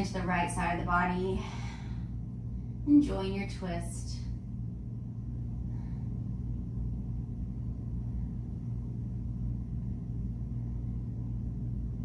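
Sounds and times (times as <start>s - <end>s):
low rumbling hum: 0.0s - 12.0s.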